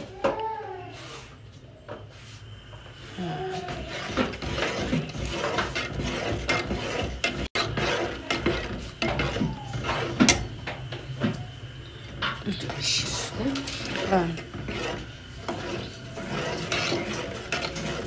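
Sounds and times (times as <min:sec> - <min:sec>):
metal spoon scraping a steel pot: 0:03.2 - 0:10.9, 0:11.9 - 0:18.0.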